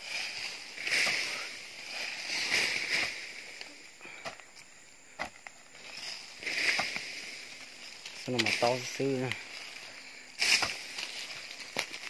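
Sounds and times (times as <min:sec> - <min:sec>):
shovel digging into soft earth: 0:00.0 - 0:04.4, 0:05.2 - 0:07.4, 0:10.4 - 0:12.0.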